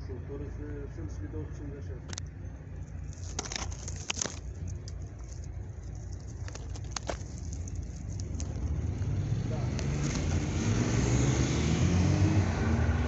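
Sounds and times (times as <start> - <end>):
steady low rumble: 0.0 - 10.9
leaves and twigs crackling: 2.8 - 11.3.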